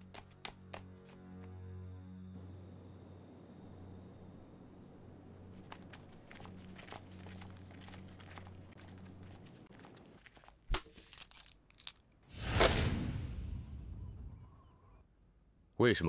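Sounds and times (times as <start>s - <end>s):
paper packet crinkling: 5.4s - 11.9s.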